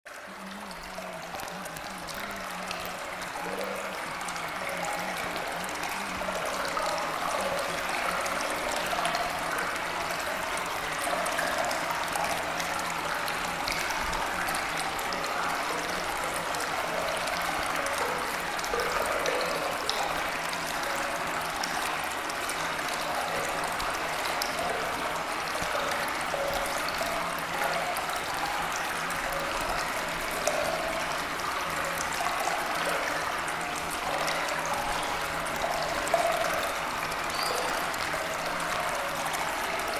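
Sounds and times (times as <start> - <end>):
running water: 0.1 - 39.9.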